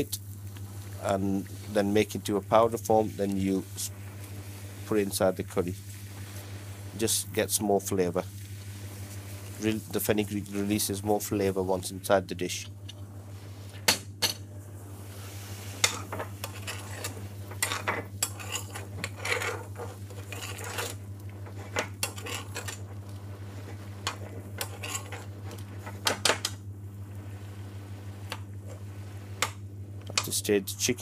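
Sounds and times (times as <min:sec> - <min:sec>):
metal spoon scraping a pan: 0:15.8 - 0:26.1.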